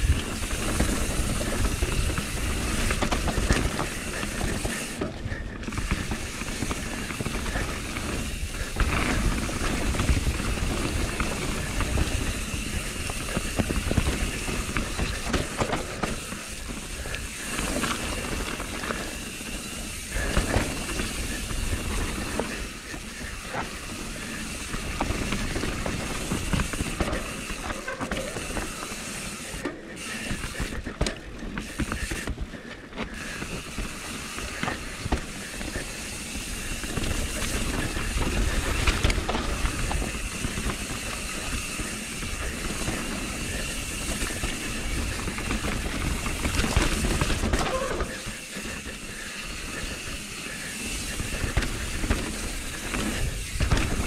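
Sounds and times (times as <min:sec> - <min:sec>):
bike knocking and rattling: 0:00.0 - 0:54.0
tyres rolling on dirt: 0:00.0 - 0:54.0.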